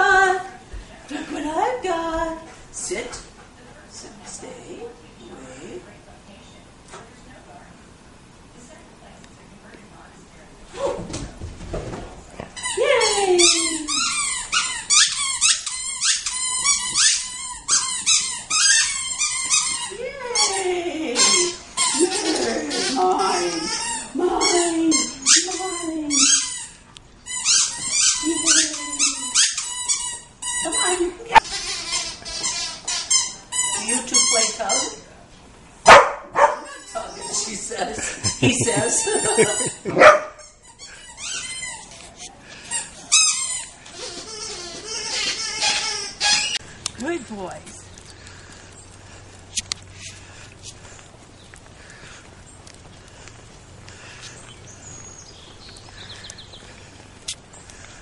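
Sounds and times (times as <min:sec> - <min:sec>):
dog chewing squeaky toy: 0:12.5 - 0:20.6, 0:21.2 - 0:35.0, 0:38.3 - 0:52.6
dog barking: 0:35.9 - 0:36.7, 0:40.0 - 0:40.4.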